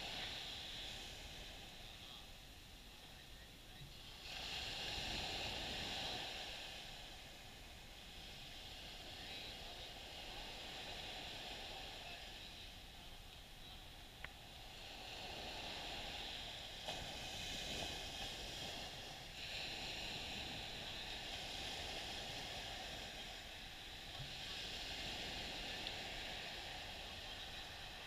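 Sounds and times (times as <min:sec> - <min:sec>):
small waves washing on sand: 0:00.0 - 0:28.0.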